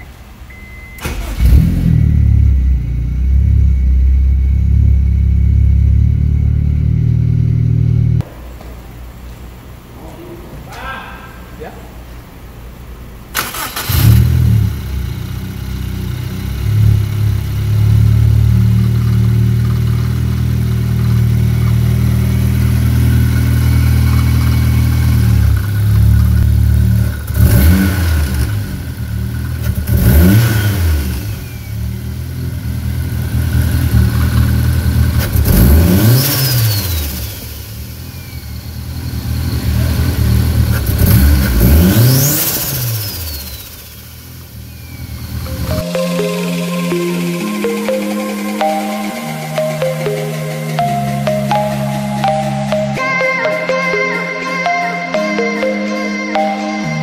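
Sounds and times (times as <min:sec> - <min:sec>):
car engine idling and revving: 0:00.0 - 0:08.3, 0:12.8 - 0:45.8.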